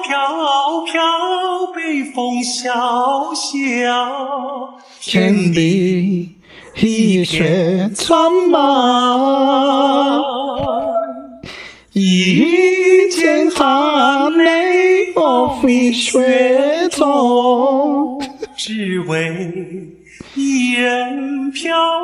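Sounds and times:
person singing unaccompanied: 0:04.9 - 0:22.0.

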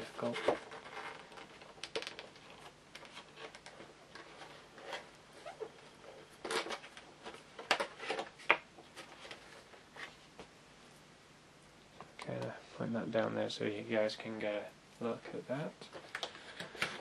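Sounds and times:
cardboard and plastic rustling: 0:15.9 - 0:17.0.

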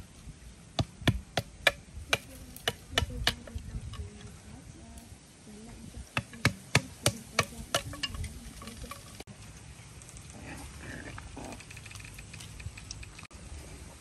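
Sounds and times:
soft scattered sounds: 0:00.0 - 0:14.0.

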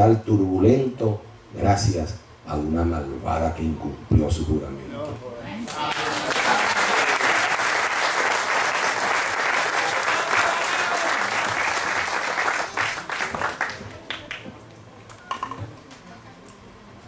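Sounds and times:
audience applauding: 0:05.7 - 0:14.5.

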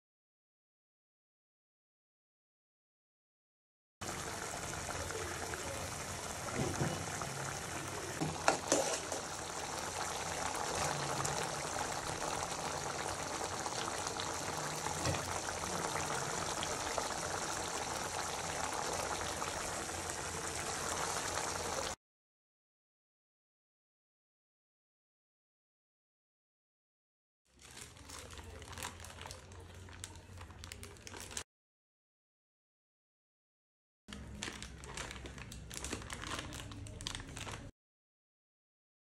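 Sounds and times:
curry bubbling and simmering: 0:04.0 - 0:22.0.

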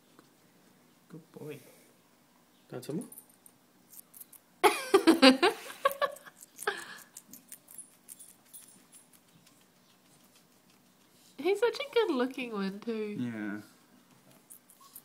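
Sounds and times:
guinea pig chewing celery: 0:03.9 - 0:04.5, 0:06.0 - 0:12.1, 0:14.0 - 0:15.0.

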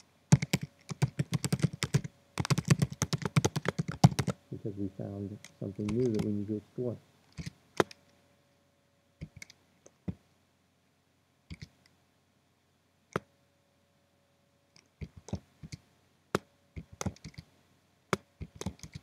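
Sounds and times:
computer keyboard keystrokes: 0:00.3 - 0:04.4, 0:05.4 - 0:06.3, 0:07.3 - 0:08.0, 0:09.2 - 0:09.6, 0:11.5 - 0:11.8, 0:15.0 - 0:15.8, 0:16.8 - 0:17.5, 0:18.1 - 0:19.0.

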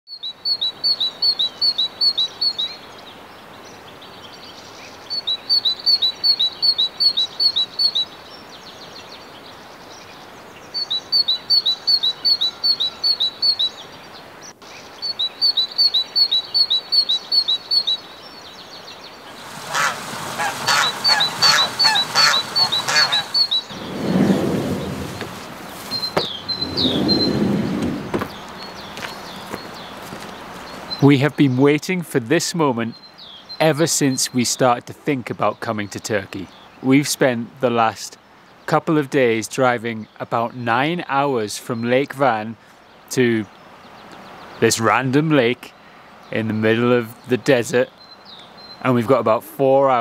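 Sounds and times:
rough repeated bird calls: 0:00.1 - 0:03.0, 0:04.3 - 0:31.8
songbird chirping: 0:00.1 - 0:50.0.

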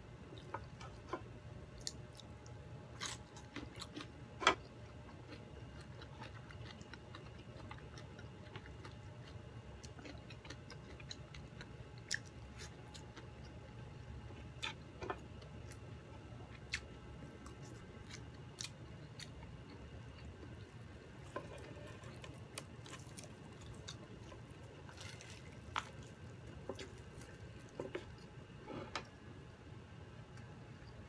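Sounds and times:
steady low hum: 0:00.0 - 0:31.0
wet chewing: 0:01.8 - 0:15.8, 0:16.5 - 0:28.3.

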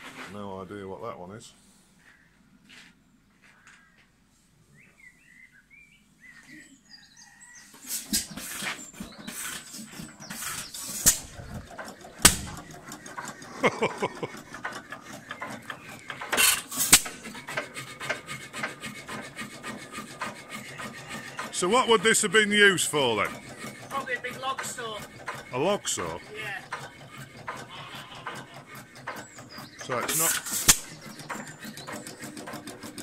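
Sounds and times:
engine clattering: 0:08.1 - 0:33.0
engine firing bangs: 0:12.2 - 0:12.8.

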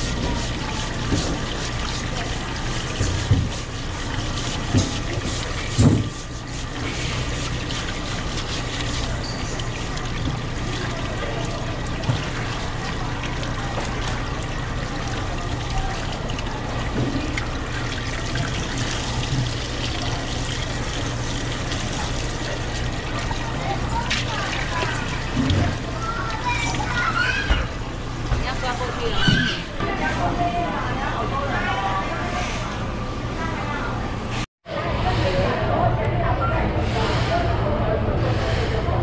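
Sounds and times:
water running: 0:00.0 - 0:29.9.

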